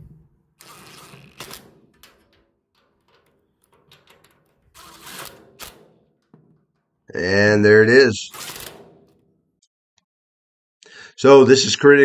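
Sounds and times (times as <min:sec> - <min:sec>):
impact driver driving bolts: 0:00.0 - 0:06.6, 0:08.3 - 0:09.3.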